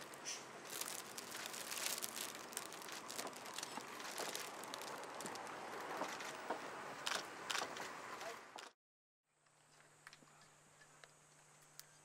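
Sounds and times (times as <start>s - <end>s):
faint clicks and crinkles: 0.0s - 6.4s.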